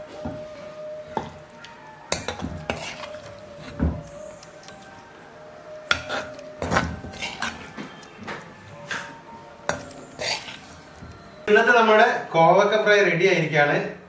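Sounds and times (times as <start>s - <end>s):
metal spoon scraping iron pan: 2.1s - 3.3s, 5.9s - 8.1s, 9.7s - 10.9s.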